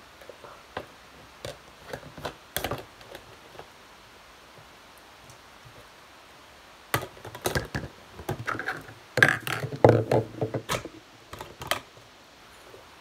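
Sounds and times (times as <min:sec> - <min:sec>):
plastic cups knocking on table: 0:06.9 - 0:11.9.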